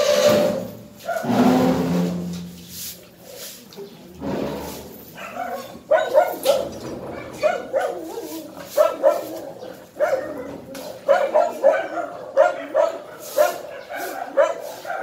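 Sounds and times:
dog barking in high yips: 0:01.0 - 0:01.3, 0:05.2 - 0:09.4, 0:10.0 - 0:15.0.

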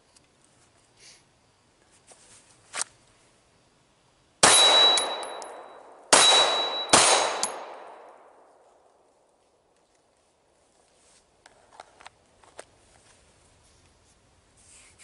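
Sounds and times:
steel target ringing: 0:04.4 - 0:08.2
pistol shots: 0:04.4 - 0:08.5.

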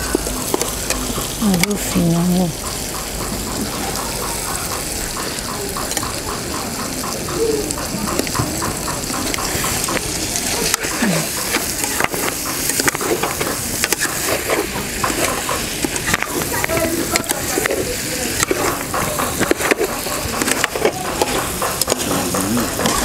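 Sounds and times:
sauce sizzling and bubbling: 0:00.0 - 0:23.0
metal spoon scraping pot: 0:09.3 - 0:23.0.

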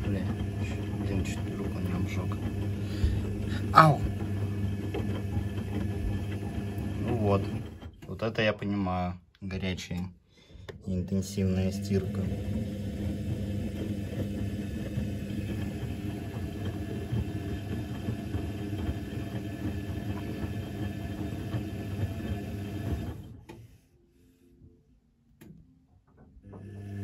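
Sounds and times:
washing machine drum churning: 0:00.0 - 0:08.5, 0:11.2 - 0:23.5, 0:26.4 - 0:27.0.

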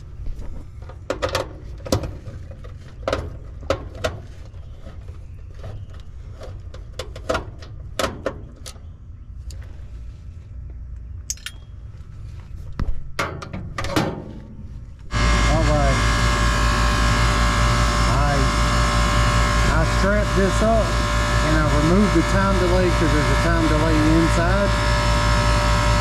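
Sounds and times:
steady low rumble: 0:07.5 - 0:26.0.

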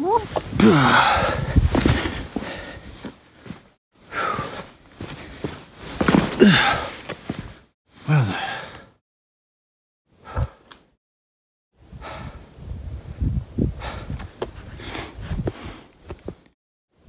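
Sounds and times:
person breathing hard: 0:00.6 - 0:03.1, 0:04.0 - 0:05.5, 0:08.1 - 0:09.0, 0:10.2 - 0:10.7, 0:11.9 - 0:12.5, 0:13.7 - 0:15.9.

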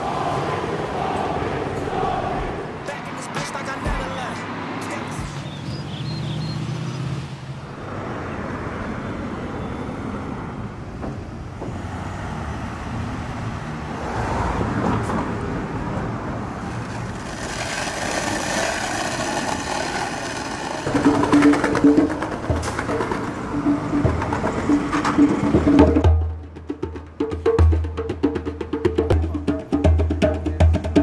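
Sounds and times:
passing cars: 0:00.0 - 0:31.0.

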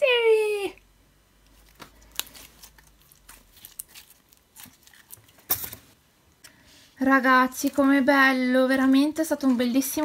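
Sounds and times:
slime squelching and crackling: 0:01.5 - 0:06.0.

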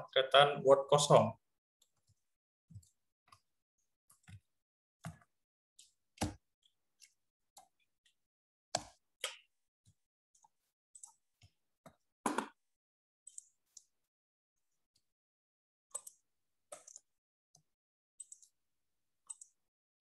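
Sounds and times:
computer mouse and keyboard clicks: 0:15.9 - 0:17.6, 0:18.2 - 0:18.6, 0:19.2 - 0:19.6.

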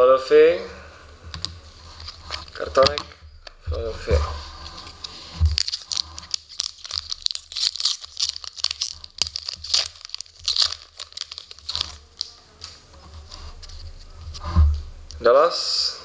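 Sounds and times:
foil wrapper tearing and crinkling: 0:04.6 - 0:13.6.

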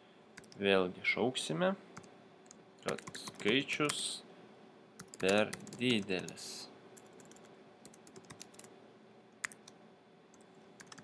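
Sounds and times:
faint keyboard typing: 0:00.3 - 0:00.7, 0:01.9 - 0:04.0, 0:05.0 - 0:08.7, 0:09.3 - 0:11.0.

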